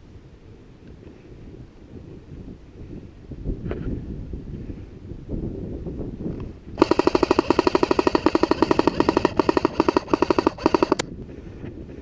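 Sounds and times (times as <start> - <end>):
airsoft rifle firing full-auto: 6.8 - 11.1.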